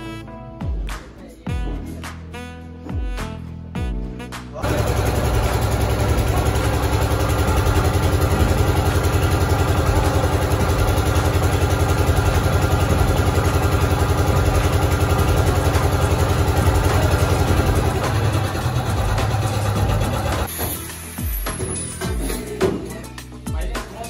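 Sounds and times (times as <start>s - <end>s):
mud pump engine running: 4.6s - 20.5s.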